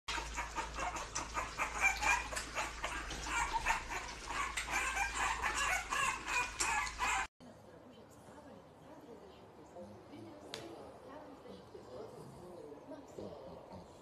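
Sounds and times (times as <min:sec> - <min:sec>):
puppies lapping food: 0:00.1 - 0:07.3
puppies squeaking and grunting: 0:00.1 - 0:07.3.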